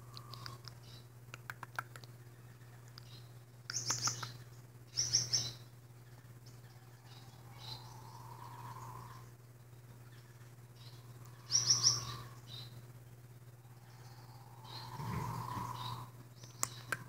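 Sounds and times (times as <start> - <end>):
bird chattering: 0.0 - 17.0
bird clicks: 0.1 - 2.2, 3.7 - 4.4, 16.4 - 17.0.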